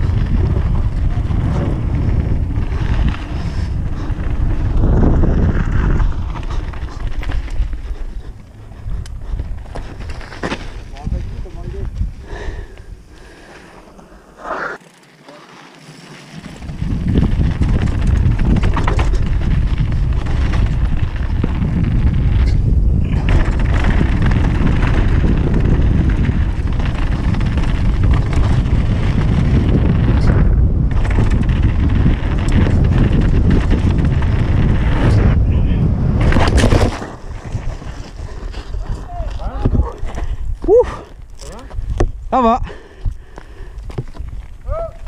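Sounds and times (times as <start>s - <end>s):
wind buffeting microphone: 0.0s - 13.6s, 16.4s - 45.0s
bike tyres on dirt and gravel: 0.0s - 45.0s.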